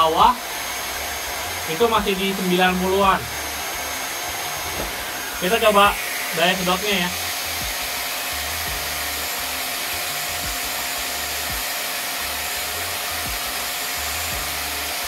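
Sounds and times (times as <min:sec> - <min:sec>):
vacuum cleaner running: 0:00.0 - 0:15.0.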